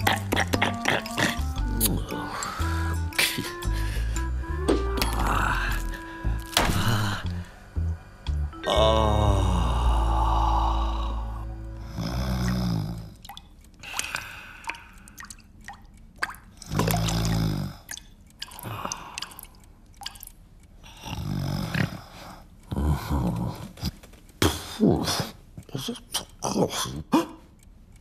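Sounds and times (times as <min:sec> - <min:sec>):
water dripping: 0:00.0 - 0:08.8, 0:09.8 - 0:20.8
man groaning in pain: 0:08.6 - 0:11.4.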